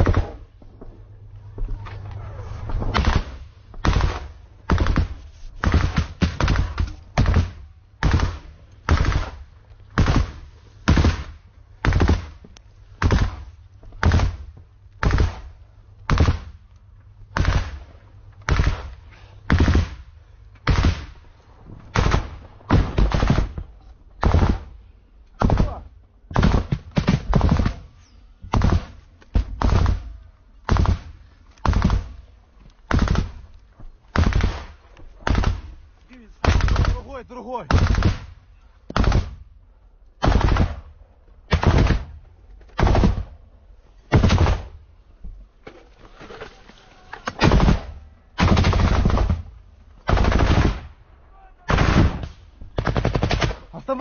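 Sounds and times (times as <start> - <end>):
rifle shots: 2.8 - 12.4, 13.0 - 16.6, 17.3 - 21.3, 21.9 - 24.8, 25.4 - 32.3, 32.9 - 35.8, 36.4 - 38.4, 39.0 - 39.5, 40.2 - 43.4, 44.1 - 44.8, 47.2 - 51.0, 51.6 - 53.7.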